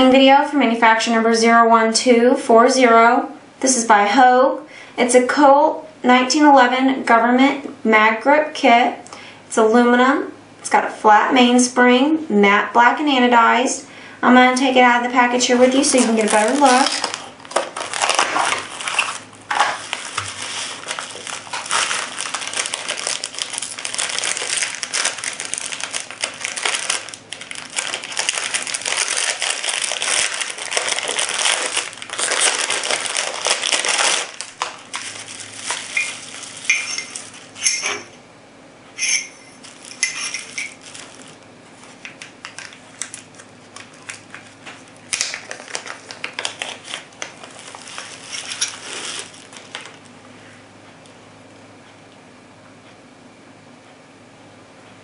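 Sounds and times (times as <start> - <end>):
plastic packaging crinkling: 15.4 - 38.2, 39.0 - 50.1.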